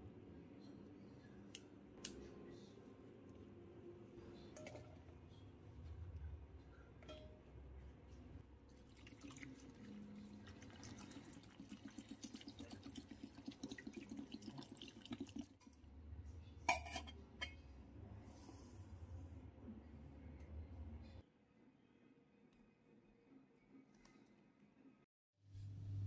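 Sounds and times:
water gurgling into a pot: 8.8 - 15.6
metal lid clanking on pot: 16.7 - 17.6.

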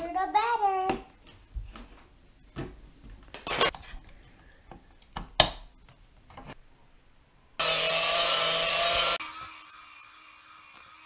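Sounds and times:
electric hand mixer running: 7.6 - 11.0.

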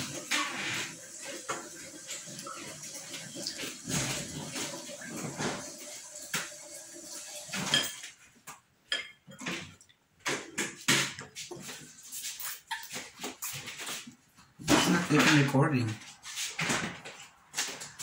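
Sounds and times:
child chewing and slurping: 0.0 - 5.6.

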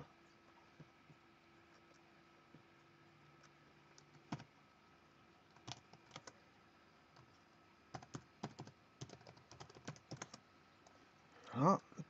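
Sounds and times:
faint keyboard typing: 0.7 - 4.6, 5.4 - 6.4, 7.1 - 11.8.

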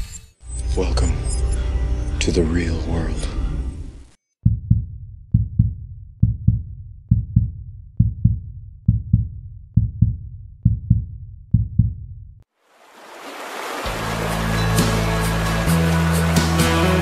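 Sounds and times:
heartbeat thumps: 4.4 - 12.4.

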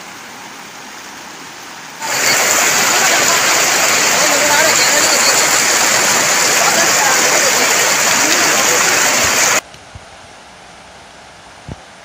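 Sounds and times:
river rushing over rocks: 0.0 - 9.6.

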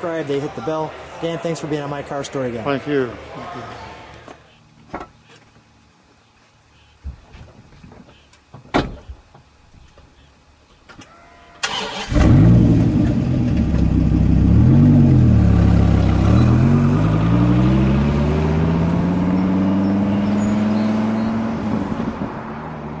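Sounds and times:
car engine revving: 11.7 - 23.0.

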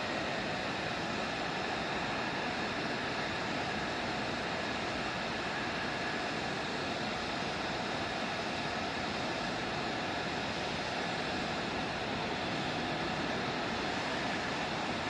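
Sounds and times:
faint steady whine: 0.0 - 15.0
jet turbine roar: 0.0 - 15.0.

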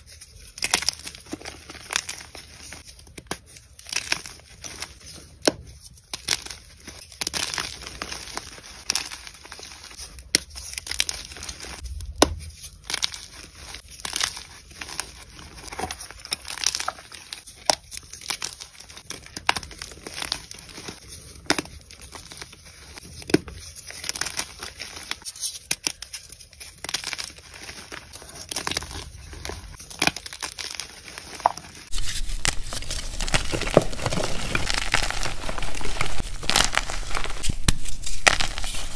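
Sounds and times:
chalk crunching by hand: 27.0 - 38.9.

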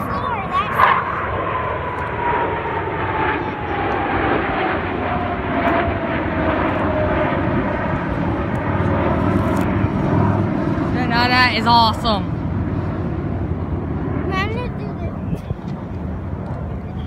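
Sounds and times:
jet fighters flying past: 0.0 - 17.0.

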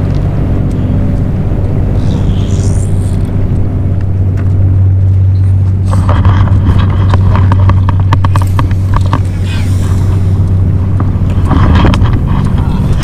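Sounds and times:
low engine drone: 0.0 - 13.0.

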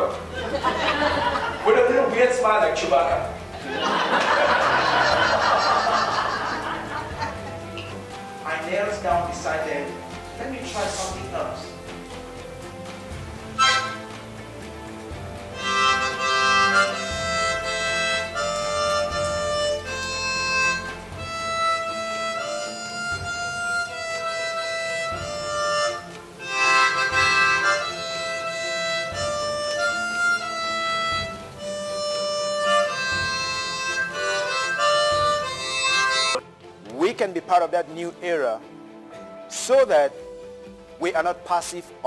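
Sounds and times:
harmonica playing: 13.4 - 14.5, 15.4 - 36.4.

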